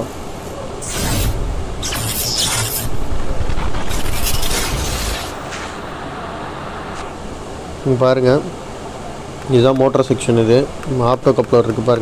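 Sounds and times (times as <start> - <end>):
rushing noise bursts: 0.0 - 9.0
low rumble: 0.8 - 7.4.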